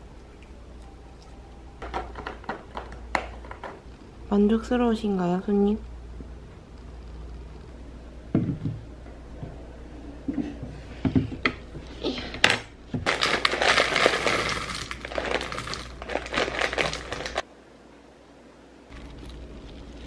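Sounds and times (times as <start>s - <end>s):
cereal pouring into bowl: 13.1s - 17.4s
foil bag crinkling: 13.1s - 17.4s.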